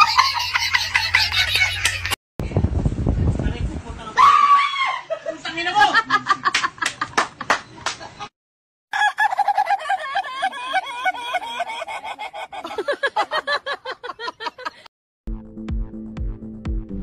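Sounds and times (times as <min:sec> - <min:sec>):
man imitating rooster crowing: 0:08.9 - 0:09.7
music: 0:15.3 - 0:17.0.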